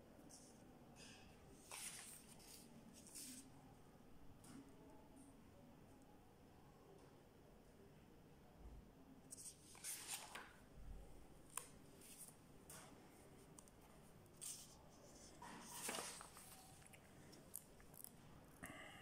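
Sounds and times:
paper pages rustling: 1.6s - 3.5s, 9.3s - 10.6s, 11.5s - 12.4s, 14.3s - 18.1s.

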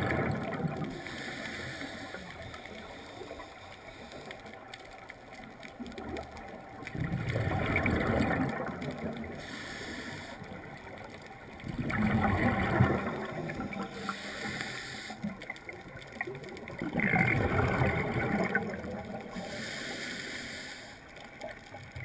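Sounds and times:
exhaled air bubbling underwater: 0.0s - 22.0s
regulator hiss: 1.0s - 4.7s, 9.3s - 10.8s, 13.8s - 15.3s, 19.4s - 21.2s.

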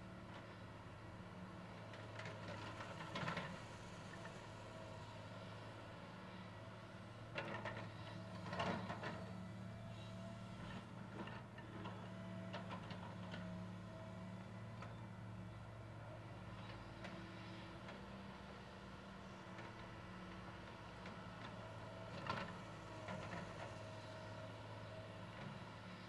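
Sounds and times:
excavator diesel engine running: 0.0s - 26.0s.

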